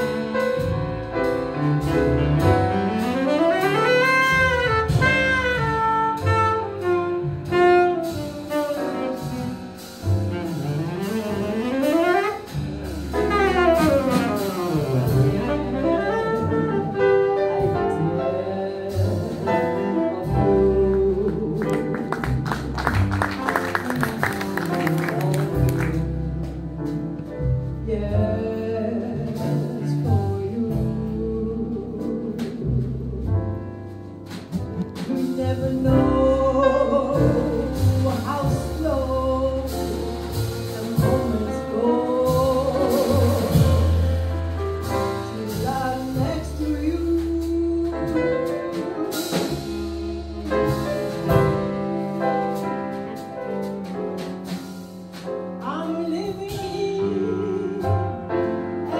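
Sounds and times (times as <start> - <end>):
double bass: 0.0 - 58.9
piano: 0.0 - 58.9
woman singing: 13.2 - 22.4, 24.0 - 27.1, 27.8 - 33.6, 35.0 - 44.2, 45.0 - 51.6, 55.6 - 58.9.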